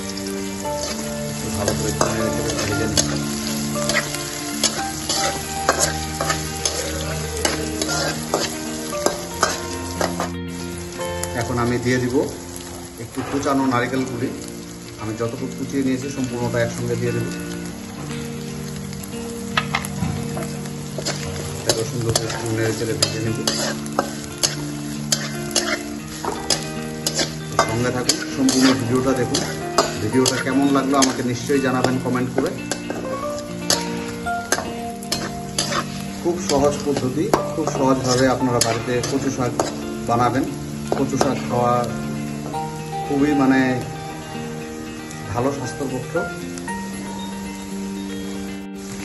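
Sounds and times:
frying hiss in hot oil: 0:00.0 - 0:49.0
metal spatula scraping iron pan: 0:02.0 - 0:10.3, 0:20.4 - 0:31.2, 0:34.5 - 0:39.8.

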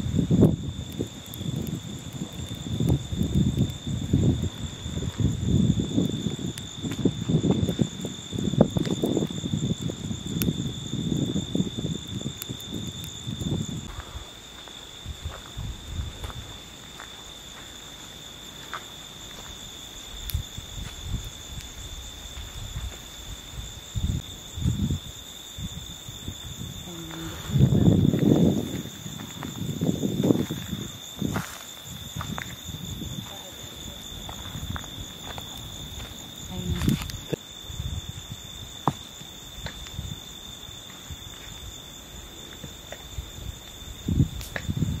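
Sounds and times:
crickets trilling: 0:00.0 - 0:45.0
low rumbling bumps: 0:25.7 - 0:39.0.

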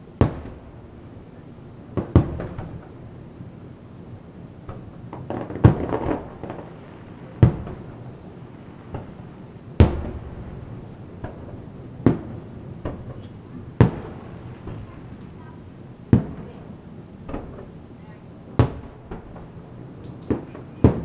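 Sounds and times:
firework booms with echo: 0:00.0 - 0:01.0, 0:01.9 - 0:03.2, 0:04.6 - 0:21.0
firework crackle: 0:00.0 - 0:21.0
faint firework pops: 0:02.0 - 0:03.0, 0:04.7 - 0:08.0, 0:08.8 - 0:09.2, 0:09.8 - 0:15.5, 0:16.1 - 0:16.6, 0:17.2 - 0:17.8, 0:18.6 - 0:21.0.

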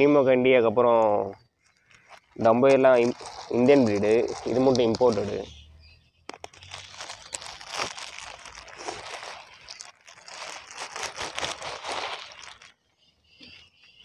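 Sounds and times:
plastic bags crinkling: 0:01.5 - 0:05.6, 0:06.2 - 0:12.9.

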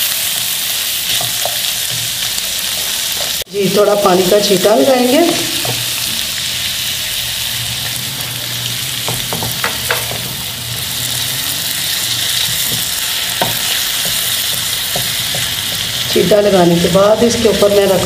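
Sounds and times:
chicken sizzling in a frying pan: 0:00.0 - 0:18.0
spatula knocking and scraping: 0:09.1 - 0:10.3, 0:12.2 - 0:16.0.

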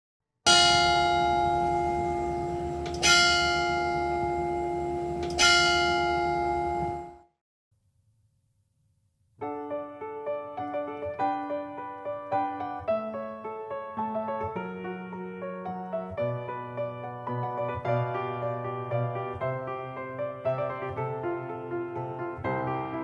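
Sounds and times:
bell ringing: 0:00.5 - 0:07.2
piano music: 0:00.5 - 0:07.3, 0:09.4 - 0:23.0.

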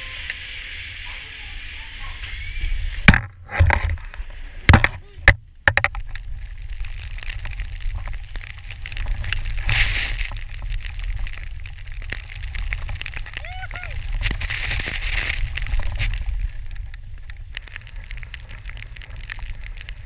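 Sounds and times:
wind rumbling on microphone: 0:01.6 - 0:20.0
rush of snow spray: 0:09.4 - 0:10.4.

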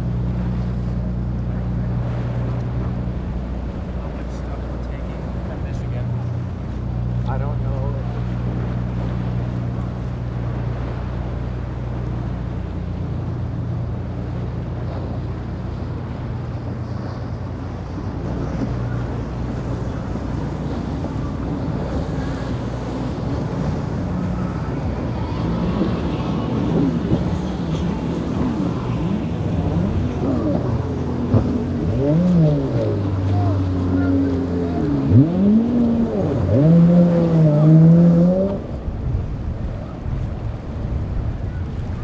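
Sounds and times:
boat wash and waves rushing: 0:00.0 - 0:42.0
motorboat engines droning: 0:00.0 - 0:42.0
wind buffeting microphone: 0:00.0 - 0:42.0.

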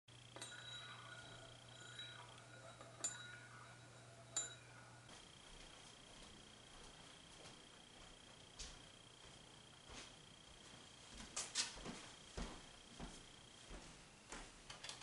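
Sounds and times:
faint low hum: 0:00.1 - 0:15.0
metal spoon clinking on ceramic bowl: 0:00.3 - 0:05.0.

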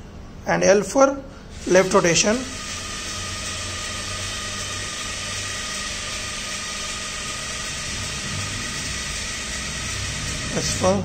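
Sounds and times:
even hiss: 0:01.5 - 0:11.0
small gear motors humming: 0:02.0 - 0:11.0.

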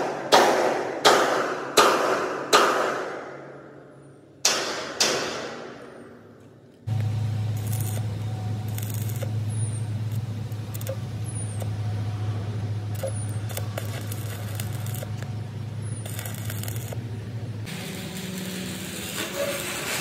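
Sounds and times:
machine humming: 0:06.8 - 0:20.0.

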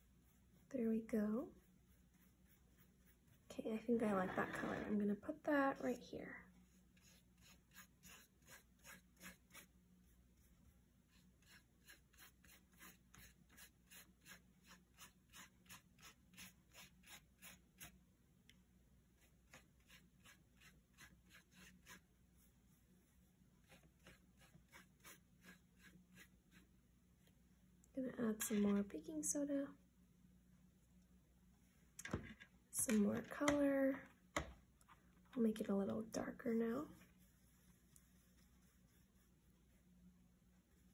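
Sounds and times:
paintbrush strokes on paper: 0:00.0 - 0:18.0, 0:19.1 - 0:27.4, 0:35.4 - 0:40.9.

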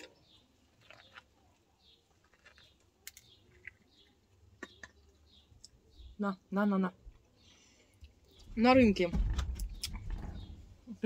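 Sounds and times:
biting and chewing corn: 0:00.0 - 0:04.9.

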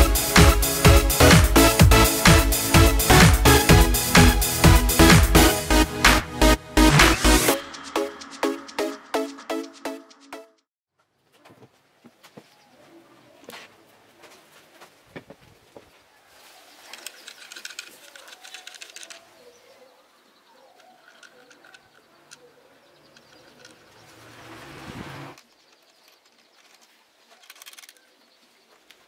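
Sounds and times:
small birds chirping: 0:16.2 - 0:24.7, 0:25.4 - 0:29.0
rushing noise: 0:24.2 - 0:25.4.

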